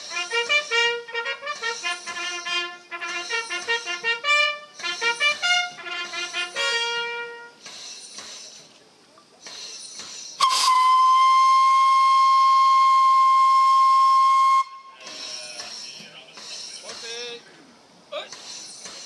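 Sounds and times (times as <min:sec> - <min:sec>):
bugle call: 0:00.0 - 0:07.6, 0:10.4 - 0:15.1
steam locomotive whistle: 0:00.0 - 0:07.7, 0:10.4 - 0:15.4.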